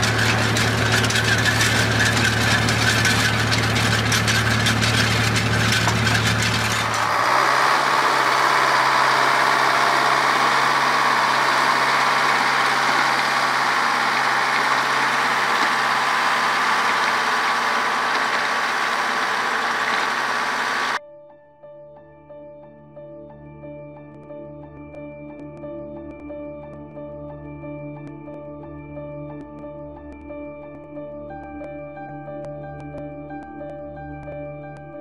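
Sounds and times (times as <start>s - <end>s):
tractor driving power harrow: 0.0s - 21.0s
tractor engine with rattling: 0.0s - 21.0s.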